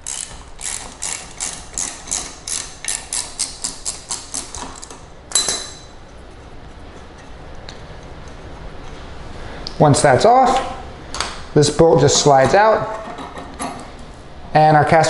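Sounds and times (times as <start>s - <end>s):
socket ratchet clicking: 0.0s - 4.9s.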